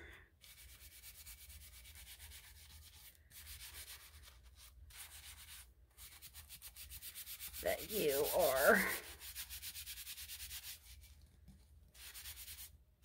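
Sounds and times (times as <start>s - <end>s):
abrasive pad scrubbing: 5.0s - 10.9s.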